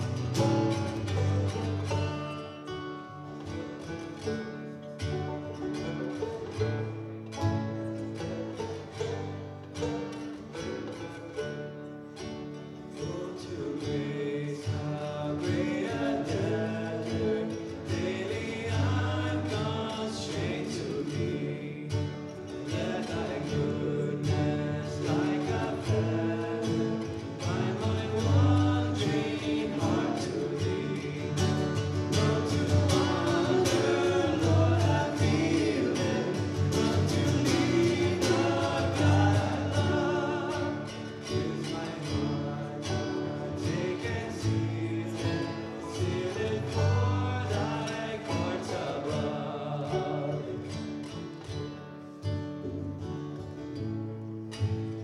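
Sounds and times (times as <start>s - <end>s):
banjo and guitars strummed: 0.0s - 55.0s
men singing together: 13.0s - 51.2s.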